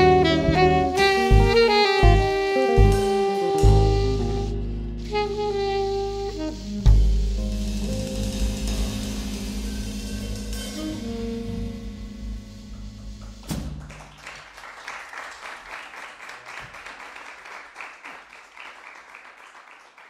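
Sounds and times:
jazz quartet playing: 0:00.0 - 0:14.2
drum and cymbal hit: 0:04.9 - 0:14.0
audience applause: 0:13.6 - 0:20.0.

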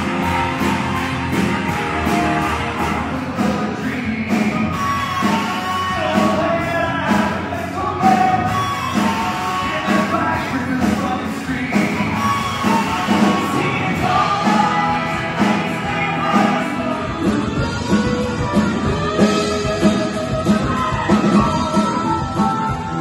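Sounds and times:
electric guitars: 0:00.0 - 0:23.0
person singing: 0:00.0 - 0:23.0.

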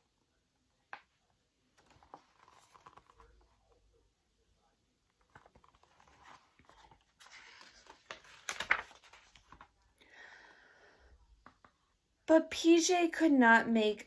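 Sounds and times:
book pages turning: 0:00.9 - 0:03.9, 0:05.0 - 0:10.0.

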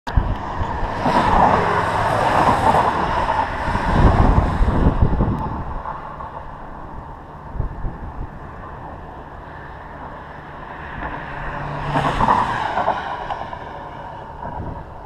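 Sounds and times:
wind buffeting microphone: 0:00.1 - 0:15.0
car passing by: 0:00.2 - 0:15.0.

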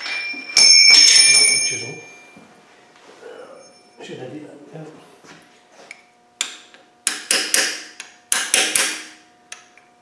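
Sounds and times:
hammer tapping metal: 0:06.4 - 0:09.7.

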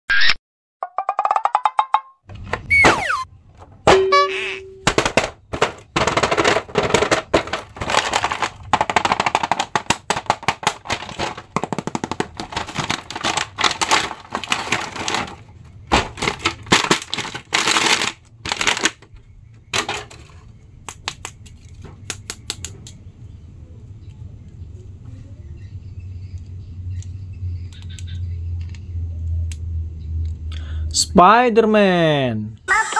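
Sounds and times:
packaging crackling and crinkling: 0:05.5 - 0:19.0.

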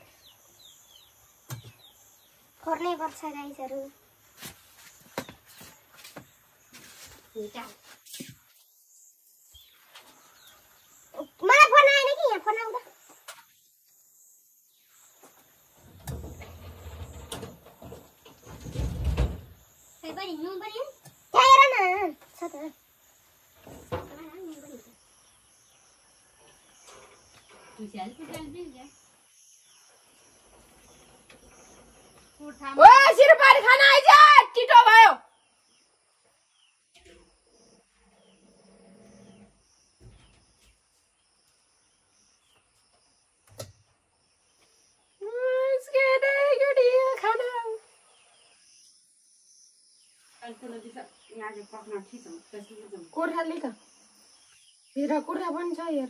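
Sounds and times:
bird chirps: 0:00.0 - 0:03.9
insects chirring: 0:00.0 - 0:56.0.

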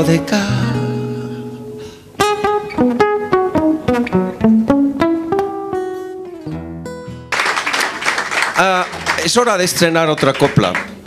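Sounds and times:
acoustic guitars playing: 0:00.0 - 0:11.0
applause: 0:07.3 - 0:11.0.

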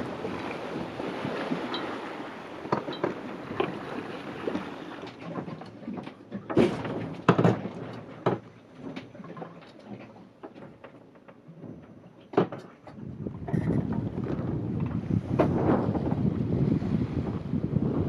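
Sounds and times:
water rushing: 0:00.0 - 0:05.2
knocks and creaks aboard boat: 0:00.0 - 0:18.0
wind: 0:00.0 - 0:18.0.

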